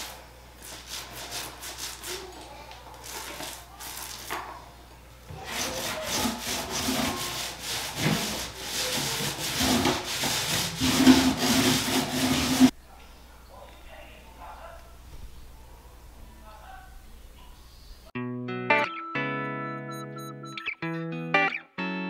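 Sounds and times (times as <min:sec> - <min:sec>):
paint roller rubbing on wood: 0:00.0 - 0:04.3, 0:05.3 - 0:12.8.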